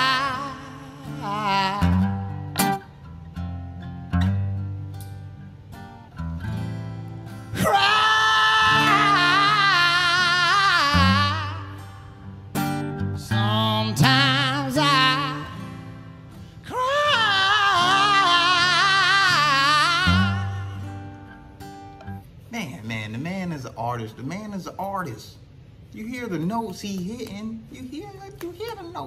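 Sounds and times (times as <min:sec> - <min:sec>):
man singing with vibrato: 0:00.0 - 0:02.5, 0:07.5 - 0:12.2, 0:13.1 - 0:21.2
acoustic guitar: 0:00.0 - 0:29.0.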